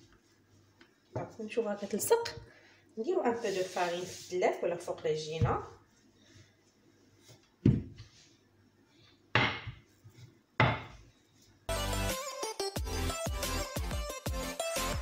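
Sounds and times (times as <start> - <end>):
rolling pin rolling over dough: 3.0 - 6.0
background music with a beat: 11.7 - 15.0.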